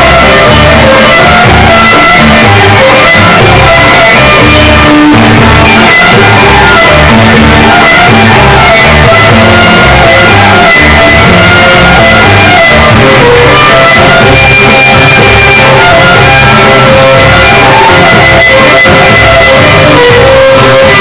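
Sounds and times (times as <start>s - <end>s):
folk dance music over loudspeakers: 0.0s - 21.0s.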